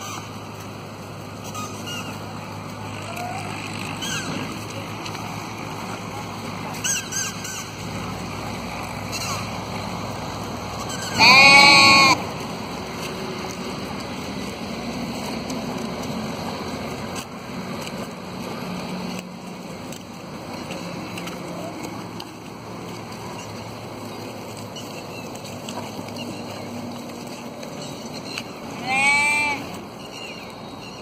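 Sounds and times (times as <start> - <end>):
sheep bleating: 10.9 - 12.2, 28.7 - 29.8.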